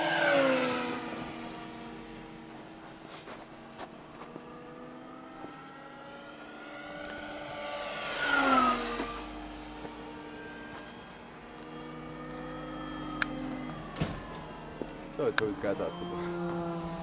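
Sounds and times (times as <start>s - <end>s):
model plane motor whining: 0.0s - 17.0s.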